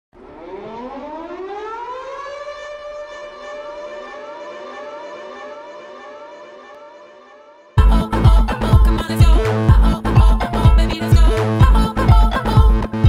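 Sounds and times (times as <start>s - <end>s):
air-raid siren wailing: 0.2s - 8.0s.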